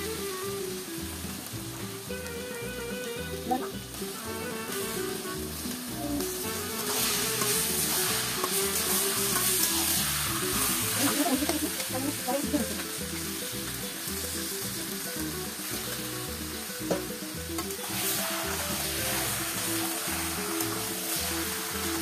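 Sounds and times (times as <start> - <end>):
meat sizzling in hot oil: 0.0 - 22.0
metal spatula scraping pan: 6.4 - 11.9.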